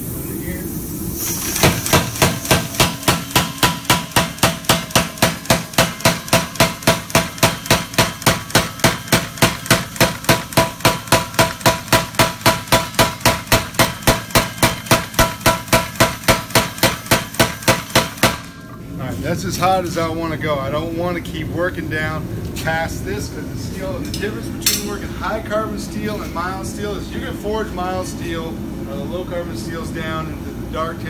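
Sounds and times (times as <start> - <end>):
power hammer striking steel: 1.6 - 18.7.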